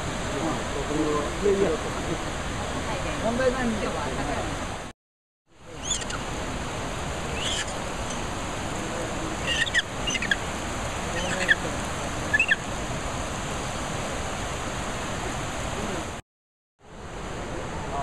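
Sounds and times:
river rapids rushing: 5.6 - 16.2
high-pitched chirping calls: 5.8 - 6.2, 7.3 - 8.3, 9.4 - 10.4, 11.2 - 11.6, 12.3 - 12.6.

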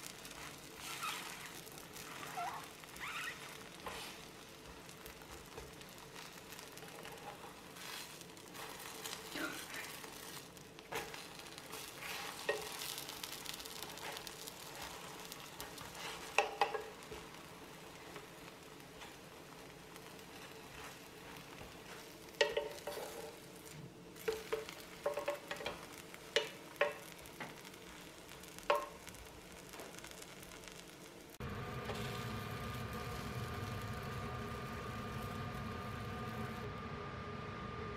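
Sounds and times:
pancakes sizzling in oil: 0.0 - 36.7
wooden spatula scraping pan: 0.3 - 2.8, 3.4 - 19.4, 20.0 - 28.9.

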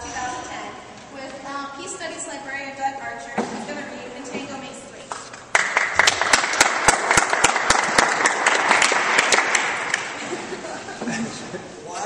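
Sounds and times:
audience applauding: 5.5 - 10.5.

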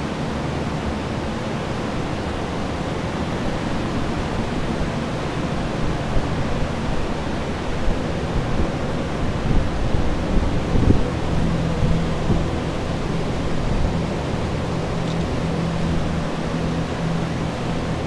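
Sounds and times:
air movers droning: 0.0 - 18.0.

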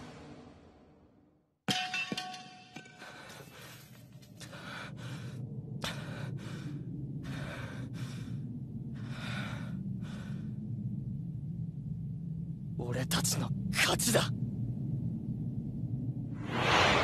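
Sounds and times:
low rumble: 4.6 - 12.8, 13.5 - 17.0.

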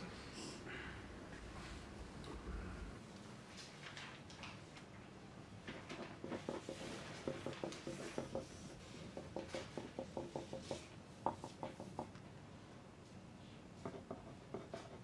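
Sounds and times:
pencils scratching on paper: 6.2 - 12.0, 13.8 - 15.0.

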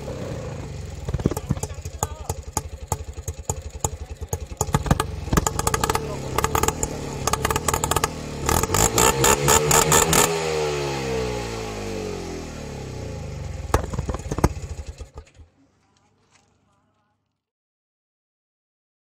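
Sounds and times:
engine revving: 0.0 - 15.5
exhaust backfire pops and bangs: 1.0 - 10.4, 13.5 - 15.5.

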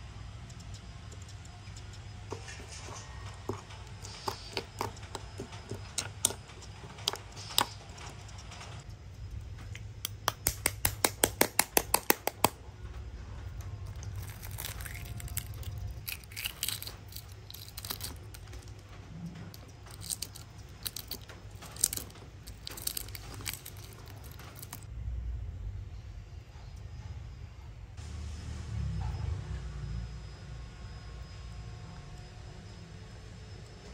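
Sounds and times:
egg shell tapping: 9.8 - 12.6, 14.1 - 18.8, 19.5 - 24.8
shell crackling as picked away: 13.9 - 18.9, 19.5 - 24.9.

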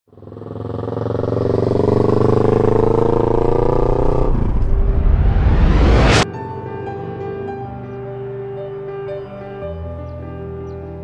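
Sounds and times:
engine revving up: 0.1 - 6.2
rising whoosh: 1.2 - 7.9.

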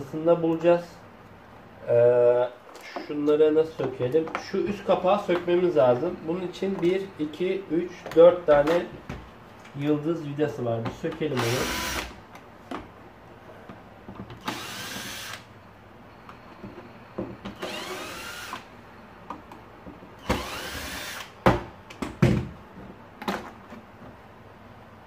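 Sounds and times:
power screwdriver running: 11.4 - 12.2, 14.4 - 15.4, 17.6 - 18.7, 20.2 - 21.3.

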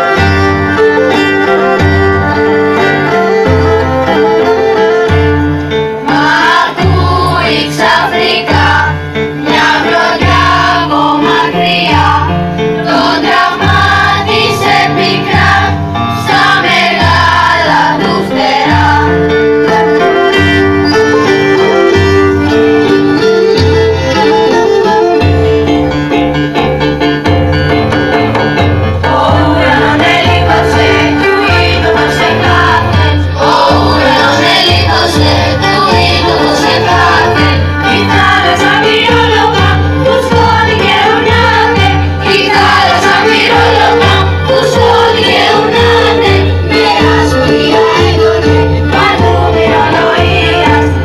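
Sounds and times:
children's choir singing: 6.0 - 21.4, 29.0 - 51.0.

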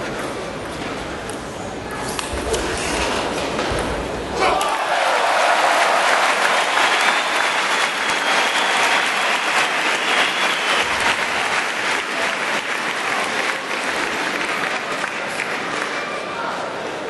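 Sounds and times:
crowd applauding: 4.5 - 16.2.

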